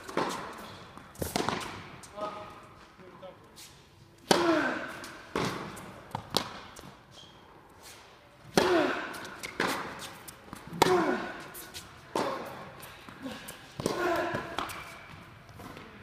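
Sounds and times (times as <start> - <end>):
tennis racket hitting ball: 0.0 - 2.0, 4.3 - 6.8, 8.4 - 15.8.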